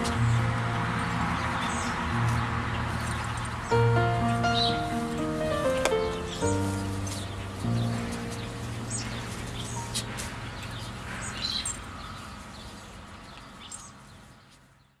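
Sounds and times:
held note of background music: 0:00.0 - 0:10.5
small birds chirping: 0:00.0 - 0:15.0.

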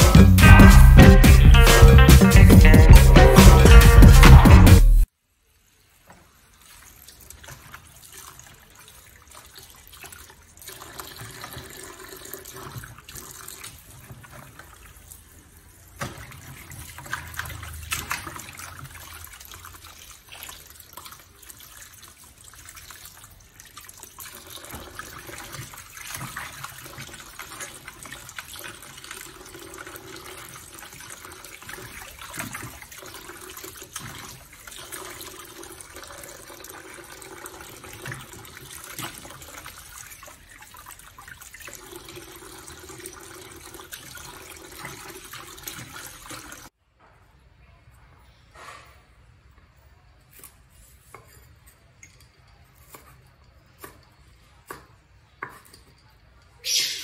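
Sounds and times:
water splashing and sloshing: 0:05.7 - 0:46.8.

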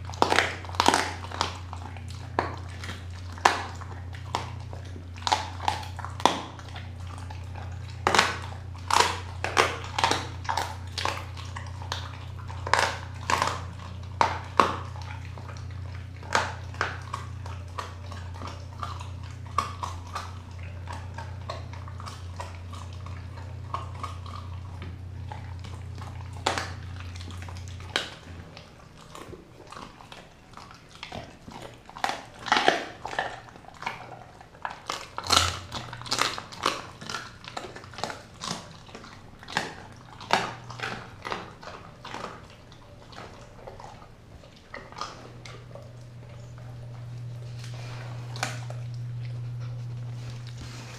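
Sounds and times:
dog chewing meat: 0:00.0 - 0:50.9
low steady hum: 0:00.0 - 0:50.9.

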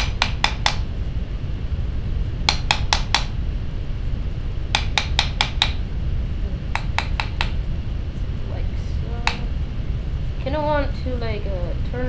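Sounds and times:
hammer tapping metal punch: 0:00.0 - 0:00.9, 0:02.4 - 0:03.4, 0:04.7 - 0:05.8, 0:06.7 - 0:07.7.

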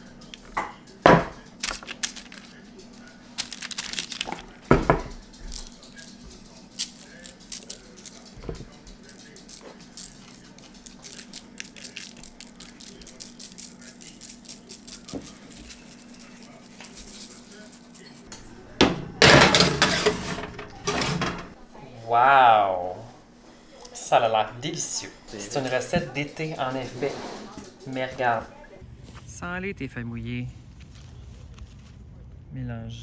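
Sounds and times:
dishes and utensils knocking: 0:00.5 - 0:01.5, 0:04.3 - 0:05.4, 0:18.4 - 0:21.6.

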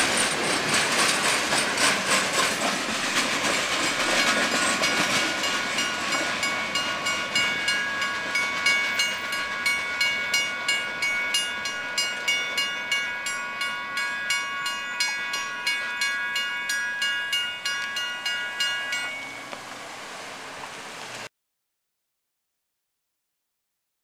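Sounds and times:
railroad crossing bell ringing: 0:03.7 - 0:19.9.

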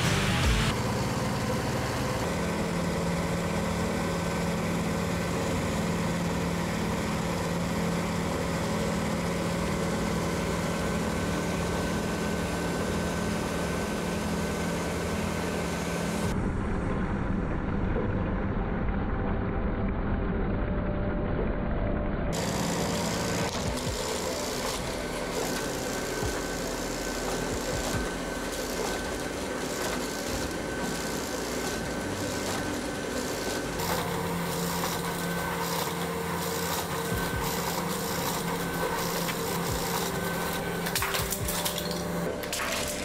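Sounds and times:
treadmill motor and belt running: 0:00.7 - 0:16.4, 0:18.3 - 0:43.0
toy motors and plastic gears whirring: 0:22.4 - 0:43.0.

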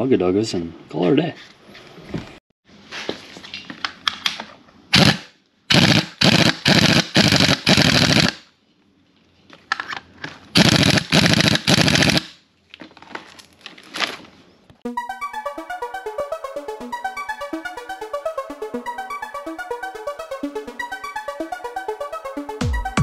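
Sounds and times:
impact wrench bursts: 0:04.9 - 0:08.4, 0:10.6 - 0:12.3.

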